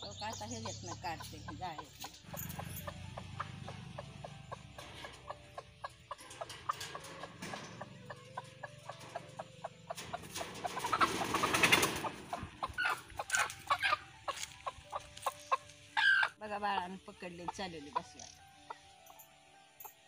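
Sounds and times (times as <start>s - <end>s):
scuffle in a cage: 0.0s - 16.4s
hens clucking: 0.0s - 18.9s
shrill hen calls: 15.3s - 16.4s.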